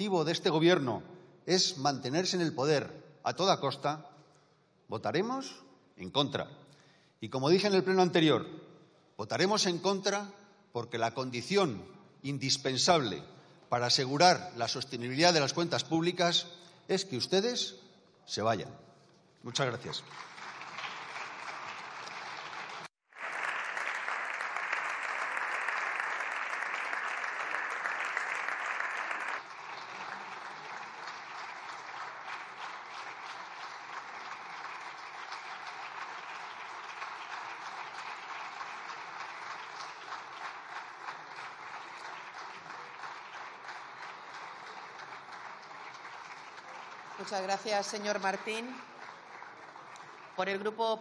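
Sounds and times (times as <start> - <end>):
crowd applauding: 19.6 - 50.8.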